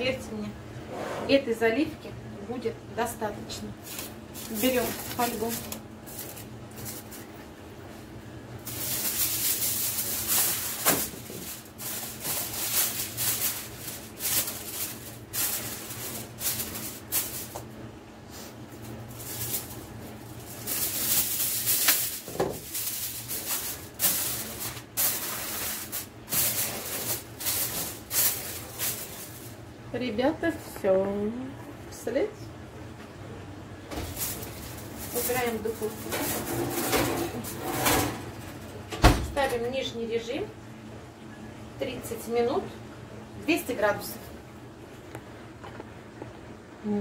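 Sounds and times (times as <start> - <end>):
aluminium foil crinkling: 3.6 - 7.5, 8.6 - 17.8, 18.4 - 29.6, 33.9 - 38.0.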